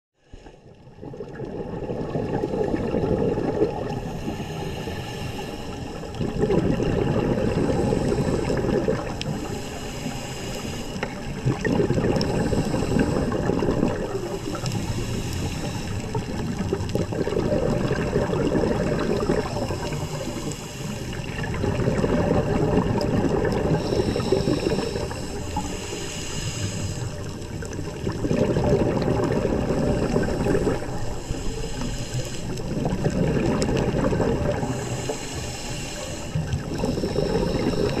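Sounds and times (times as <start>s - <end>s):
regulator inhale hiss: 0.2s - 0.8s, 3.9s - 6.2s, 7.4s - 16.7s, 18.9s - 21.6s, 23.5s - 28.0s, 29.6s - 33.1s, 34.4s - 38.0s
exhaled bubbles rumbling: 0.6s - 38.0s.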